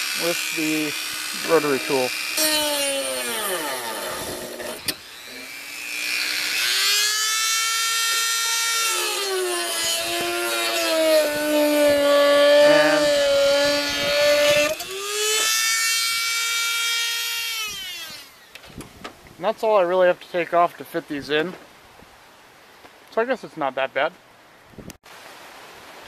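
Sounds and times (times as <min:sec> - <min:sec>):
rotary tool whine: 0:00.0 - 0:18.8.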